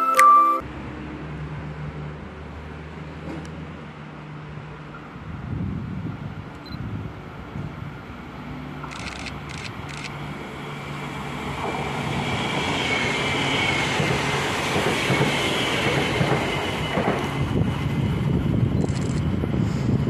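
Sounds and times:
high train whine: 2.5 - 20.0
train wheels rushing on rails: 8.8 - 20.0.

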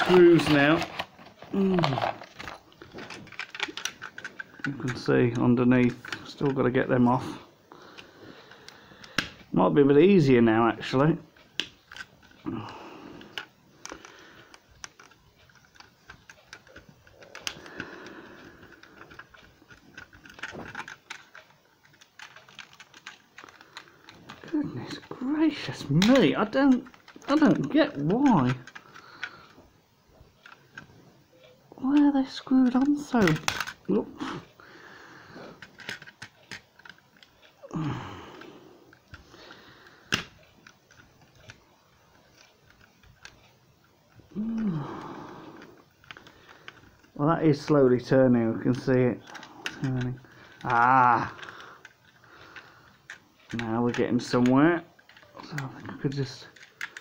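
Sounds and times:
screwdriver clicking and scraping: 0.0 - 6.6, 11.5 - 12.4, 13.2 - 29.6, 35.5 - 37.4, 48.7 - 57.0
screwdriver clicks and scrapes: 2.0 - 5.0
person groaning with effort: 37.6 - 38.6, 44.3 - 45.6, 50.6 - 51.6.

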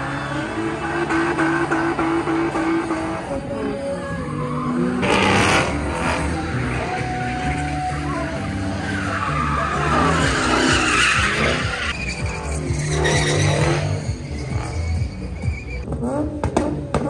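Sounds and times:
car engine revving: 0.0 - 3.8, 4.8 - 17.0
tires squealing on pavement: 0.0 - 17.0.

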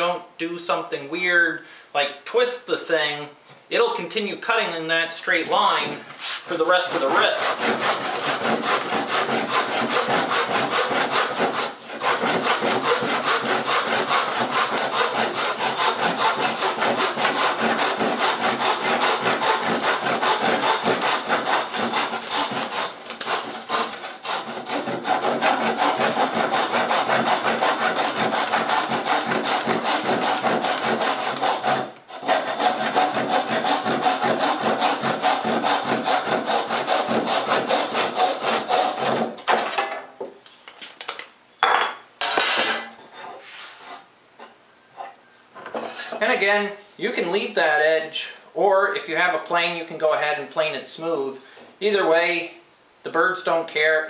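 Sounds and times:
handsaw rasping through wood: 5.6 - 39.4.

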